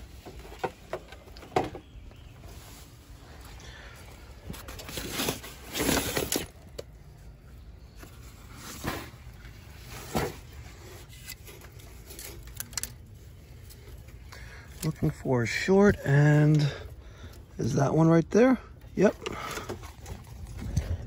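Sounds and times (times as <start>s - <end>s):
rustling and handling noise: 0.0s - 17.5s, 18.8s - 21.0s.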